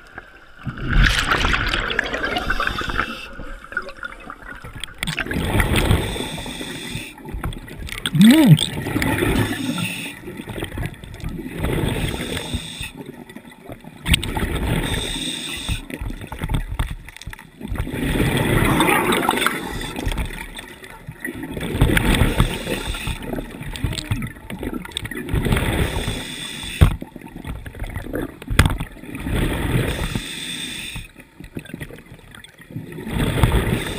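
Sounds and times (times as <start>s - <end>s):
diver breathing through regulator: 5.6s - 7.2s, 9.2s - 10.3s, 11.7s - 13.0s, 14.7s - 16.0s, 22.0s - 23.4s, 25.6s - 27.0s, 29.8s - 31.2s.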